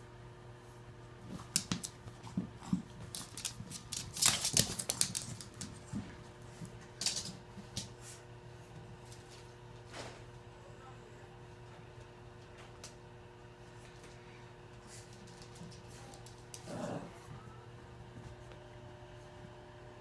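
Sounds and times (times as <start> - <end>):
dogs' claws clicking on wood floor: 1.3 - 8.1, 14.8 - 16.7.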